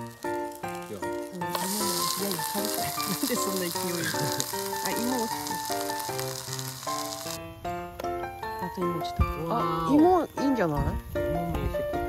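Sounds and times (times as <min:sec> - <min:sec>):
food sizzling on hot plates: 0:00.0 - 0:07.4
background music: 0:00.0 - 0:12.0.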